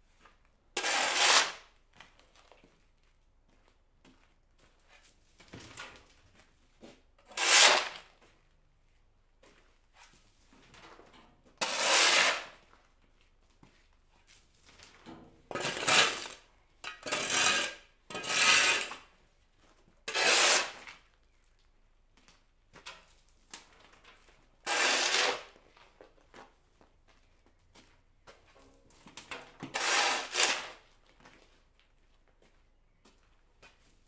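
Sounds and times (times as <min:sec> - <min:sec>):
shovel scraping concrete: 0:00.8 - 0:01.6, 0:07.3 - 0:08.1, 0:11.6 - 0:12.6, 0:15.5 - 0:19.1, 0:20.1 - 0:20.9, 0:24.7 - 0:25.6, 0:29.6 - 0:30.8.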